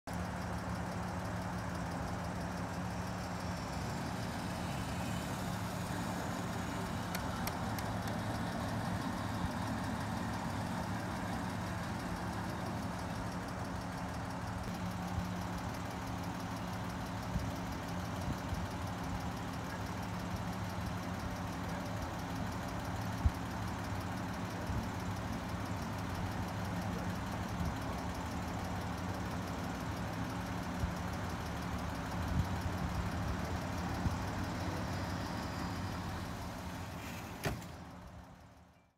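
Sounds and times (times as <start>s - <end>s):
power top motor humming: 3.3s - 13.5s.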